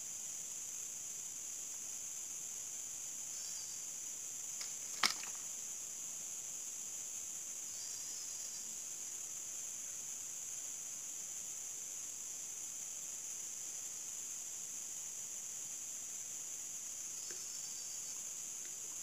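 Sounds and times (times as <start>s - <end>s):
chorus of forest insects: 0.0s - 19.0s
sharp click: 4.6s - 5.4s.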